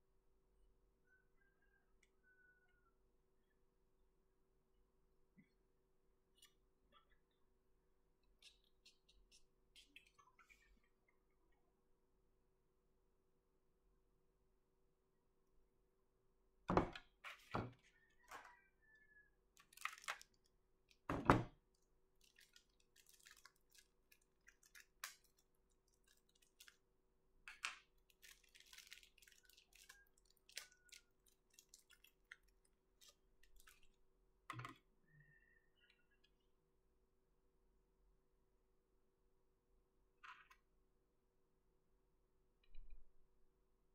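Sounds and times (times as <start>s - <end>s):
small plastic clicks and crackling: 19.6s - 21.1s, 21.7s - 26.8s, 27.5s - 34.8s.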